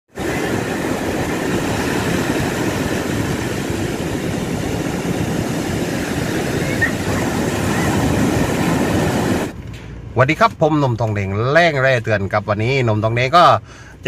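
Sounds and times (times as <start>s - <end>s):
surf breaking on beach: 0.1s - 9.6s.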